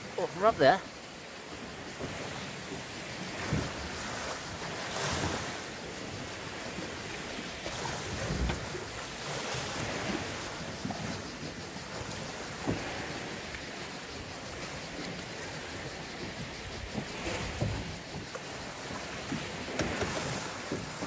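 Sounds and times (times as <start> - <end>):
sea waves washing: 0.0 - 21.0
wind buffeting microphone: 3.0 - 21.0.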